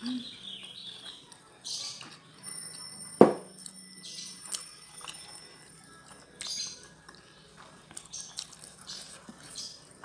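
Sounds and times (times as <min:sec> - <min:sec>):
person chewing with wet smacks: 0:06.1 - 0:10.0.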